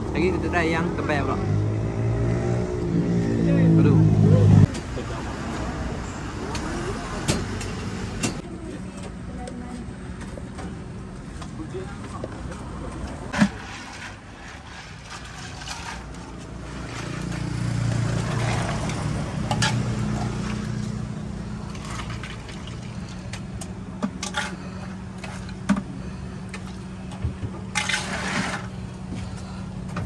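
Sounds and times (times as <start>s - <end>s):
low vehicle engine hum: 0.0s - 30.0s
plastic ladle stirring and scooping: 13.3s - 17.5s.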